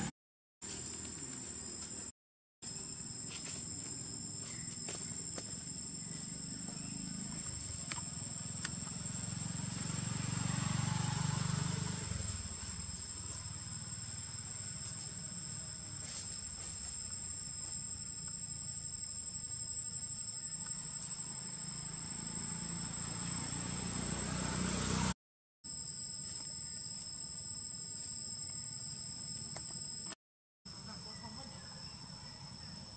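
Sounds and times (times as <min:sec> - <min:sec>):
insects droning: 0:00.6 - 0:32.9.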